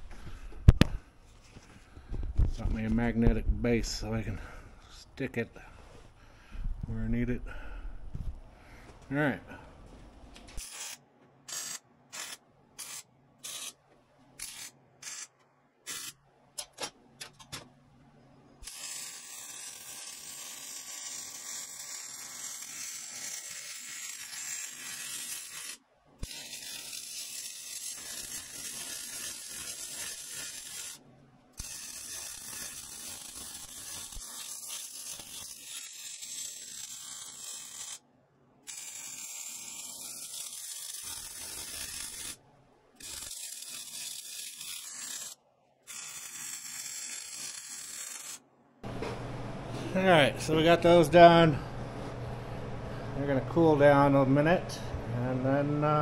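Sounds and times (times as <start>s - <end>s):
arc welding crackling hiss: 10.6s - 13.8s, 14.4s - 15.3s, 15.9s - 16.2s, 18.6s - 31.0s, 31.6s - 38.0s, 38.7s - 42.4s, 43.0s - 48.4s.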